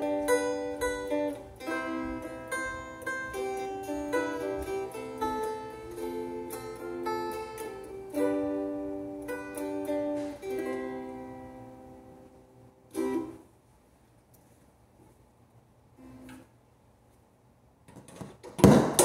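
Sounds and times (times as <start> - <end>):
ukulele strummed chords and notes: 0.0 - 13.6.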